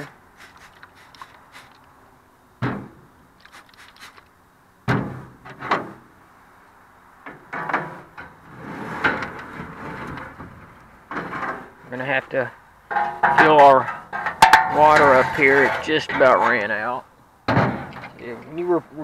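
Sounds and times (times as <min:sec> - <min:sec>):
sharp knocks on metal: 0:02.6 - 0:03.0, 0:04.9 - 0:05.9, 0:17.5 - 0:18.0
metal grates clattering and scraping: 0:07.3 - 0:12.0, 0:12.9 - 0:16.7
metal clanking and rattling: 0:12.9 - 0:16.5, 0:17.5 - 0:18.2.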